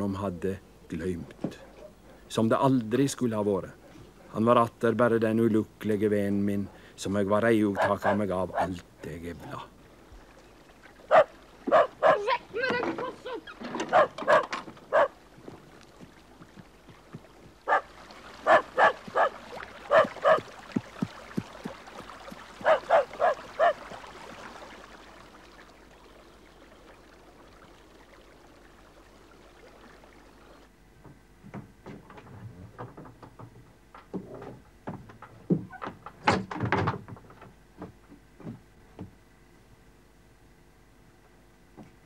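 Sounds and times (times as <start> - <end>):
dog barking behind door: 7.8 - 8.7, 11.1 - 12.4, 13.8 - 15.2, 17.7 - 20.5, 22.6 - 23.8.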